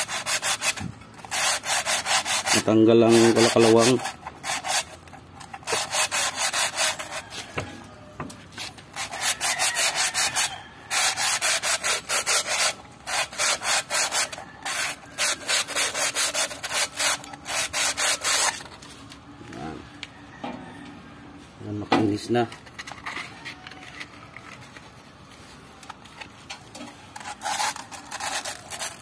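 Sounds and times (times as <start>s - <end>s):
sandpaper scraping inside metal bore: 0.0s - 7.9s, 8.5s - 18.8s, 26.8s - 29.0s.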